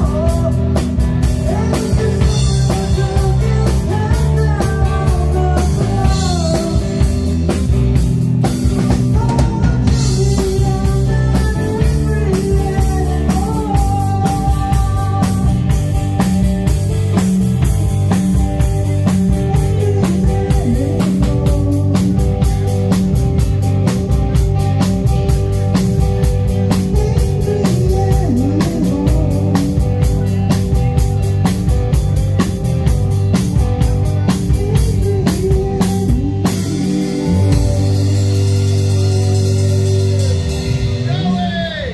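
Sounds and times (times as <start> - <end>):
live rock band playing: 0.0 - 41.9
woman singing: 1.5 - 7.3, 9.0 - 15.8, 19.6 - 22.3, 34.5 - 40.6.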